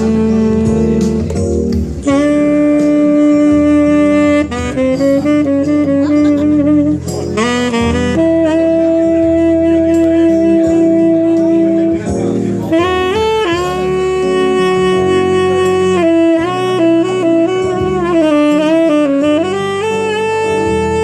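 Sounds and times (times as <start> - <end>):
tenor saxophone slow melody: 0.0 - 21.0.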